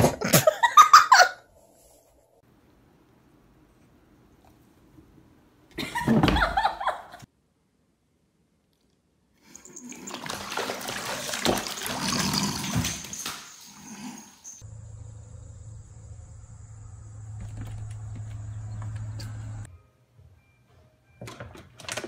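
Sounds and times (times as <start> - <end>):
water splashing in a bathtub: 9.4 - 13.8
steady low hum: 14.6 - 19.7.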